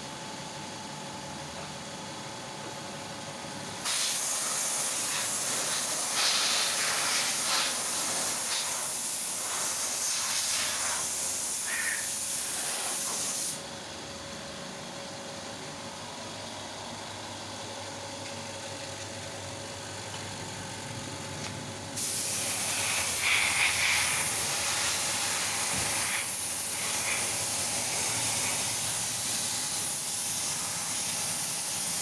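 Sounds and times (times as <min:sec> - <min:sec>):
paint spray gun hissing: 0:03.8 - 0:13.6, 0:22.0 - 0:32.0.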